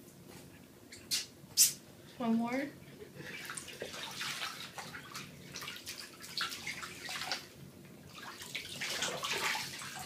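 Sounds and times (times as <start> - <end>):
bathwater splashing: 3.2 - 10.0.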